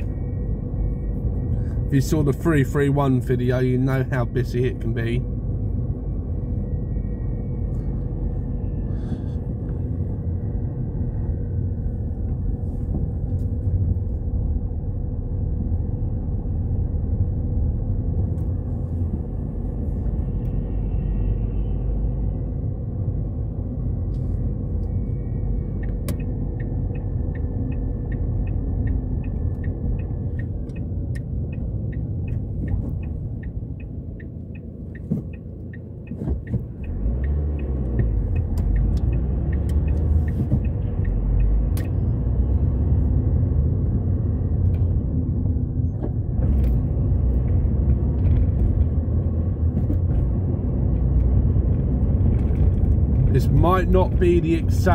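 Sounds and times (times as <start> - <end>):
car engine and road rumble: 0.0 - 54.9
turn indicator ticking: 24.0 - 45.0.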